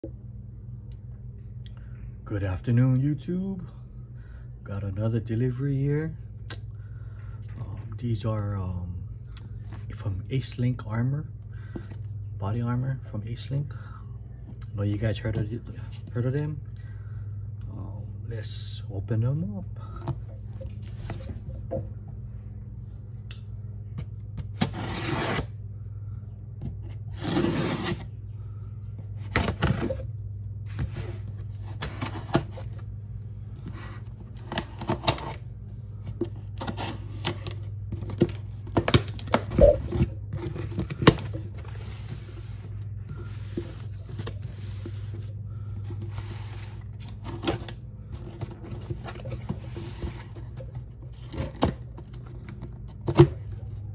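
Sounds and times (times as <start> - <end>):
steady low hum: 0.0 - 53.9
knife cutting packing tape: 24.5 - 25.5, 27.1 - 28.0.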